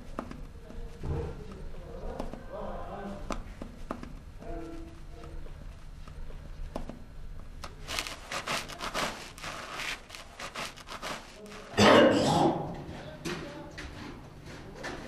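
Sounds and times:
rapid scraping and rustling: 7.6 - 11.8.

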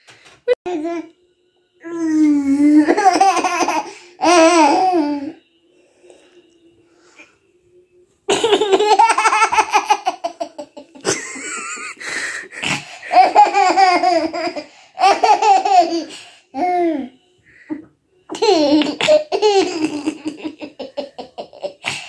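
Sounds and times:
toddler laughing: 2.8 - 5.3, 8.3 - 17.1.

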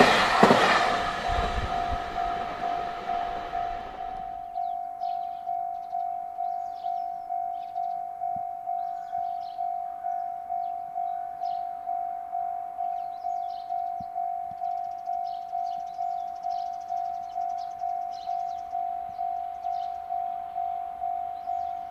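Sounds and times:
level crossing alarm ringing: 0.0 - 21.9.

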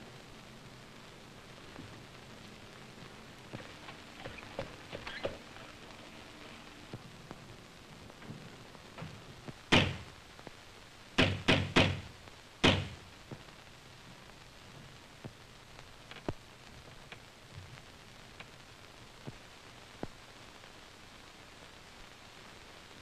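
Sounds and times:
loud knocking on heavy door: 9.7 - 10.0, 11.2 - 13.0.

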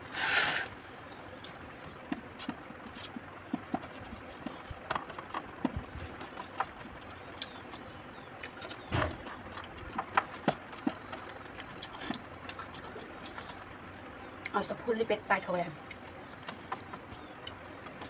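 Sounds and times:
chewing smacks: 1.4 - 14.6, 15.8 - 18.0
fingers mixing rice on metal plate: 2.0 - 13.7, 15.9 - 18.0
thump: 8.9 - 9.2.

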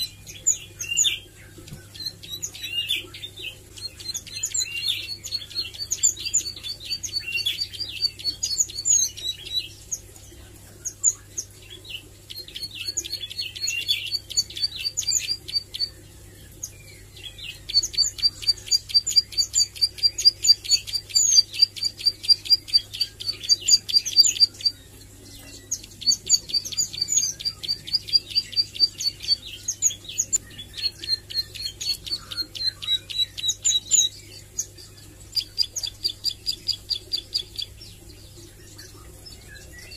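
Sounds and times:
bird singing high chips: 17.4 - 37.8.

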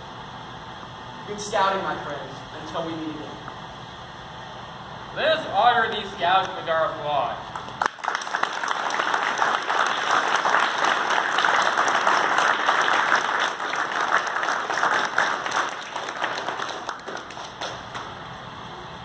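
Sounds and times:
audience applauding: 7.5 - 18.3.

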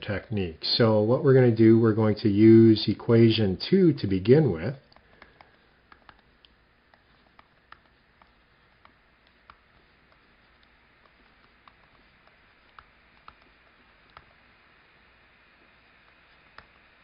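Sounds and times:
room hiss: 0.0 - 17.0
stylus tapping on tablet screen: 4.9 - 14.4.

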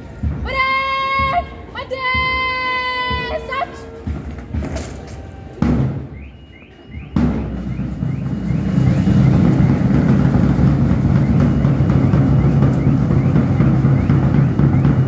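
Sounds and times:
military band with drums: 0.0 - 15.0
boots stamping on the ground: 2.1 - 6.4.

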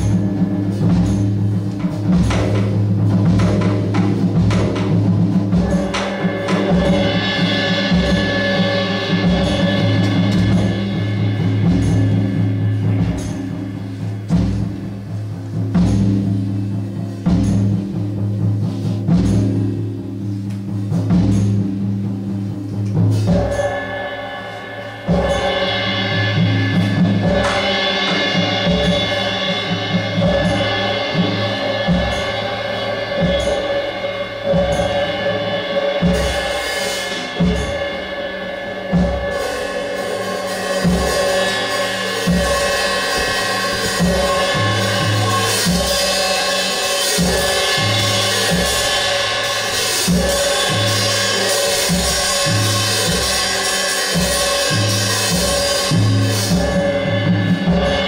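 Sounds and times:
low drum strikes: 0.0 - 46.4.

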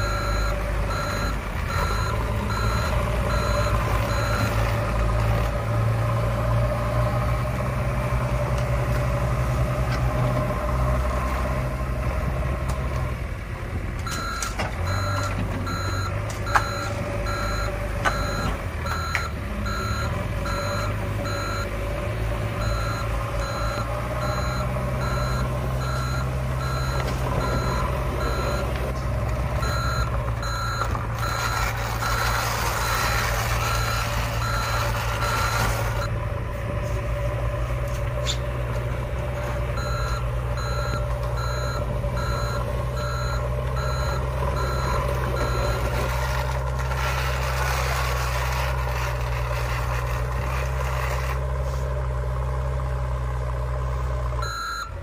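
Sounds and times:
toy reversing beeps: 0.0 - 4.6, 14.1 - 21.7, 22.6 - 28.8, 29.6 - 36.1, 39.8 - 46.0, 54.4 - 55.0
low engine drone: 0.0 - 55.0.

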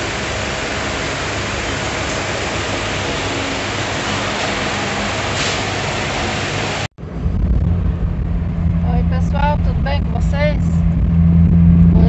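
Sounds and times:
steady rushing noise: 0.0 - 12.0.

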